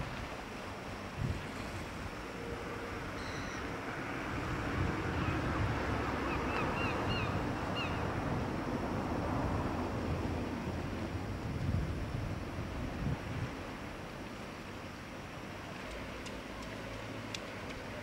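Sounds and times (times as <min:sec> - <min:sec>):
wind buffeting microphone: 0:00.0 - 0:02.2, 0:04.2 - 0:14.0
sea waves washing: 0:00.0 - 0:18.0
short high chirps: 0:03.2 - 0:03.6.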